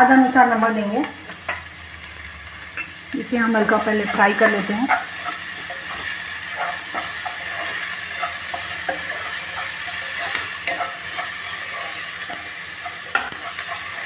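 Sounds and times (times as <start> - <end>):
onions sizzling in hot oil: 0.0 - 14.0.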